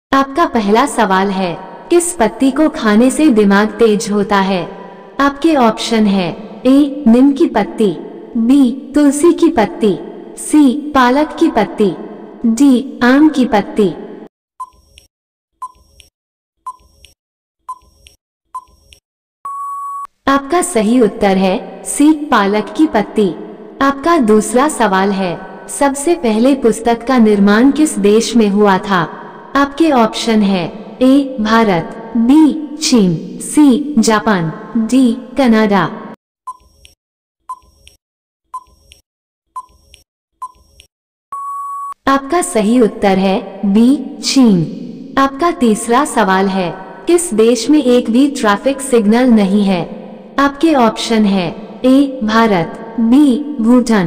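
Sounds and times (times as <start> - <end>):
long steady beep: 19.4 - 20.1, 41.3 - 42.0
short countdown beeps: 19.5 - 20.1, 41.3 - 42.0.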